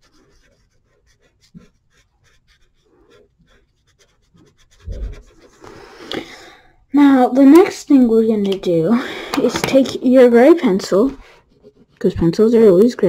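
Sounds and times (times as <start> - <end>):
pencil scratching on paper: 0.0 - 6.0, 10.5 - 12.9.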